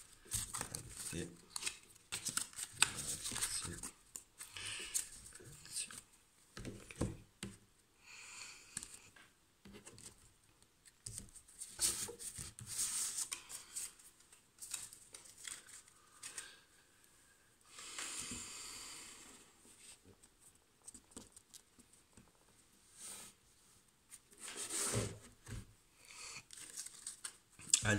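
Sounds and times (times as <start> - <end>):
cards shuffling: 0.3 - 6.0, 14.6 - 16.5, 26.5 - 27.4.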